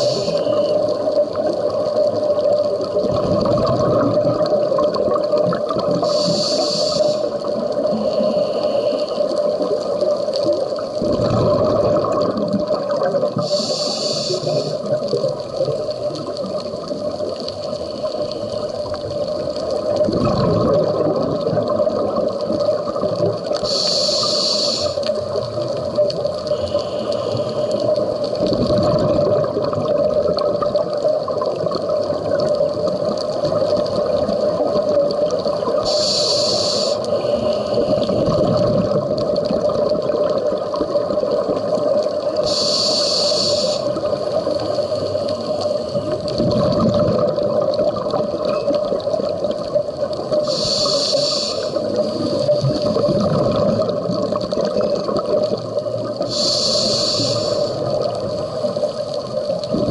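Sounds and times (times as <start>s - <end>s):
regulator breathing hisses: 0.0s - 1.0s, 6.0s - 9.7s, 13.4s - 15.2s, 23.6s - 25.2s, 26.4s - 28.3s, 35.8s - 38.3s, 42.3s - 46.2s, 50.3s - 52.6s, 56.2s - 59.2s
exhaled bubbles rumbling: 0.0s - 59.9s
underwater hum: 0.0s - 59.9s.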